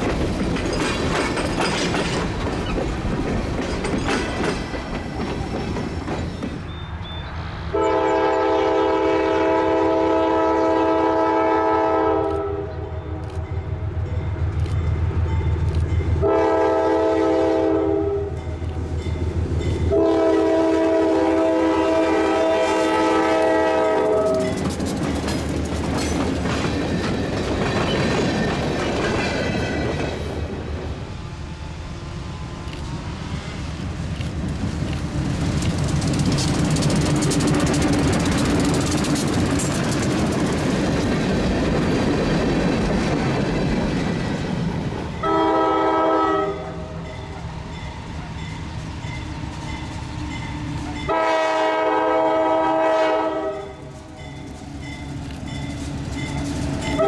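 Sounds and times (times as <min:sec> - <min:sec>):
train rumble: 0:00.0 - 0:57.0
locomotive horn blowing: 0:07.7 - 0:13.2, 0:16.2 - 0:18.5, 0:19.9 - 0:24.6, 0:45.2 - 0:47.0, 0:51.0 - 0:53.9.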